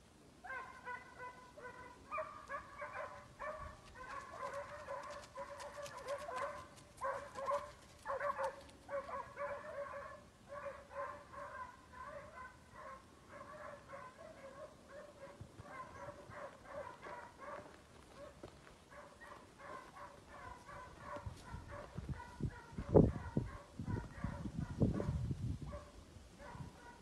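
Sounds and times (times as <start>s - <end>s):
hounds yelping: 0.5s - 27.0s.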